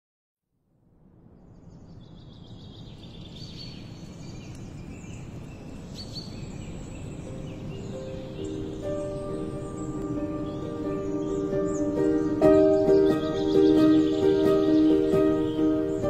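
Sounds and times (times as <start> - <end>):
birds chirping: 1.5 - 16.0
soft music tones: 6.5 - 16.0.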